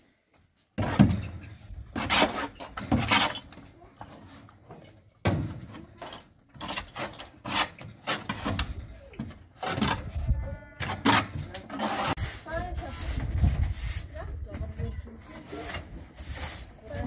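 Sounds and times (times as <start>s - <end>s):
scraping and rustling: 5.6s - 17.0s.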